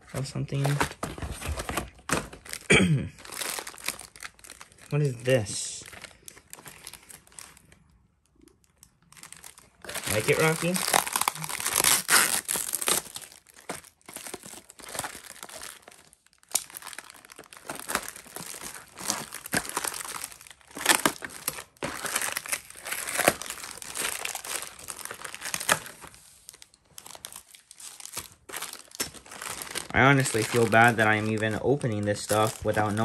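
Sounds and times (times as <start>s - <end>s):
plastic bags crinkling: 0.2s - 33.0s.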